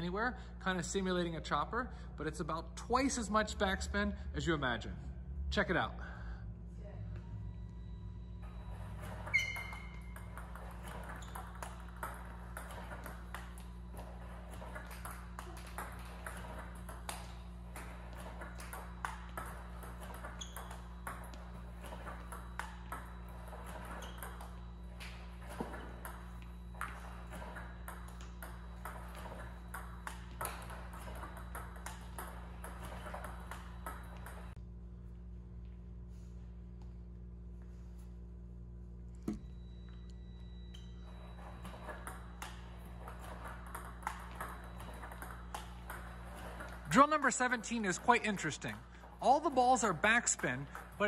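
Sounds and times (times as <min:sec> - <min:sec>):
steady low hum: 0:00.0 - 0:51.0
table tennis balls clicking: 0:08.5 - 0:34.6, 0:40.7 - 0:51.0.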